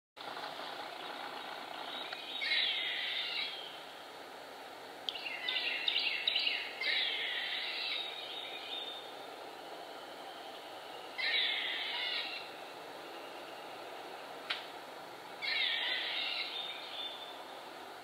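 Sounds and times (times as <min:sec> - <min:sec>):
squirrel distress calls: 0:00.9 - 0:03.9, 0:05.2 - 0:09.2, 0:10.4 - 0:13.1, 0:15.4 - 0:17.5.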